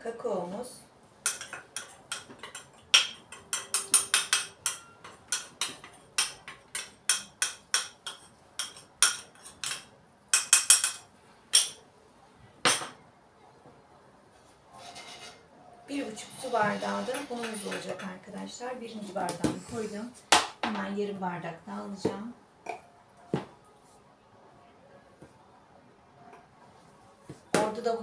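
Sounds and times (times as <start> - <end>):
metal spoon clinking on ceramic bowl: 1.3 - 11.8.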